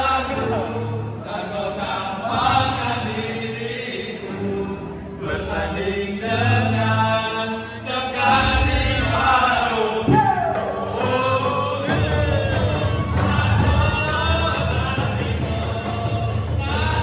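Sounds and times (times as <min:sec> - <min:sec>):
strummed acoustic guitars: 0:00.0 - 0:17.0
voices singing together: 0:00.0 - 0:17.0
cajon and hand drum beats: 0:10.0 - 0:17.0.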